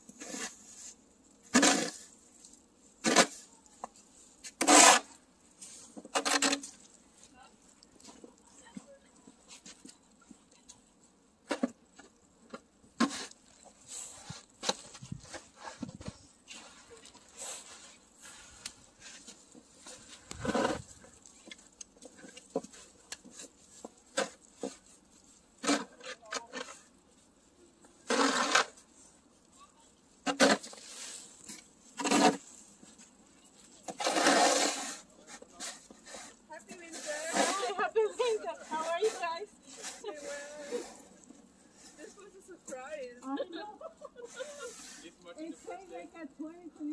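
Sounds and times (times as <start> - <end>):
shovel scraping wet snow: 0.1 - 3.5, 4.3 - 6.9, 13.0 - 15.8, 16.4 - 21.6, 22.2 - 26.9, 28.0 - 29.2, 30.2 - 32.7, 33.7 - 42.4, 44.2 - 45.2.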